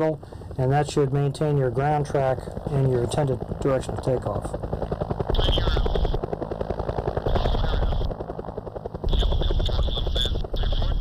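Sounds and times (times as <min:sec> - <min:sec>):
helicopter rotor chopping: 0:00.0 - 0:11.0.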